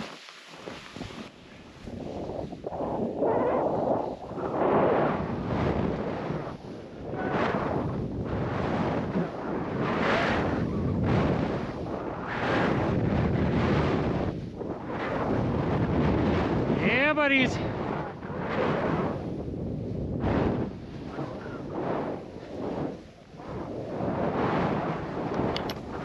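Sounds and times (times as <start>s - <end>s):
skis hissing on snow: 0.0s - 3.1s
wind buffeting microphone: 0.0s - 26.0s.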